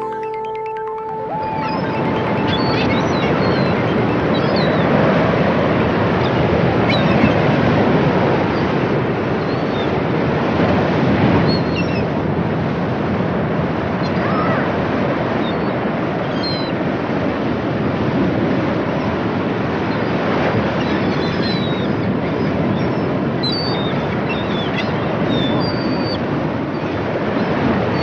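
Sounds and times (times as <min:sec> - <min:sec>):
short high chirps: 0:00.0 - 0:04.1
steady rushing noise: 0:01.6 - 0:11.4.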